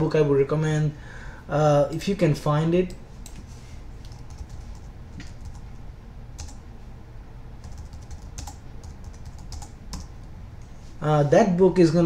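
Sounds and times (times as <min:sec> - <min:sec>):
typing on computer keyboard: 0:04.0 - 0:05.6, 0:07.6 - 0:10.1.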